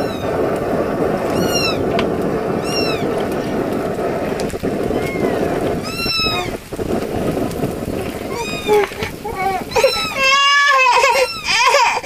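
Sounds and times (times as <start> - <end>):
wok sizzling and bubbling: 0.0 - 11.5
high arching cries: 1.2 - 1.9, 2.5 - 3.6, 4.8 - 6.7, 7.9 - 12.0.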